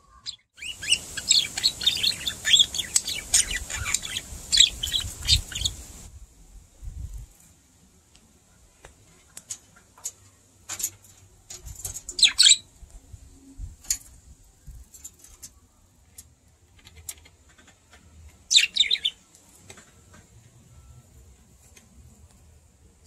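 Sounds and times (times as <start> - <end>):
budgerigar warbling chatter: 0.2 - 5.8
budgerigars chirping: 0.2 - 6.0, 12.2 - 12.6, 18.5 - 19.2.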